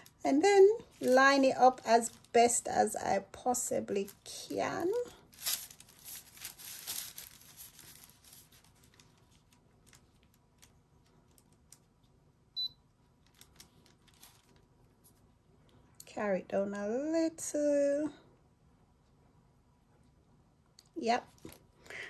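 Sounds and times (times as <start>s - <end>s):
paper rustling and sliding: 5.3s - 11.4s, 13.3s - 15.2s.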